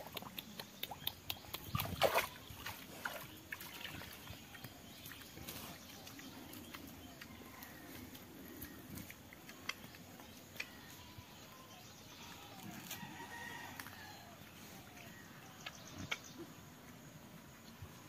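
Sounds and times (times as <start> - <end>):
pig snuffling: 4.0 - 10.8.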